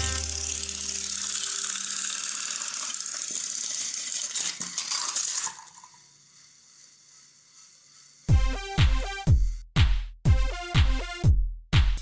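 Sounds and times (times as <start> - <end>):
toy train whirring and rattling: 0.0 - 8.3
toy cars clattering off track: 2.2 - 6.0.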